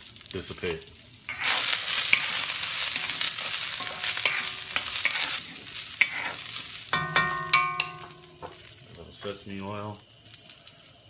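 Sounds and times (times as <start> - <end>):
vegetables sizzling in hot oil: 0.0 - 11.0
wooden spoon scraping and tapping pan: 1.3 - 9.4.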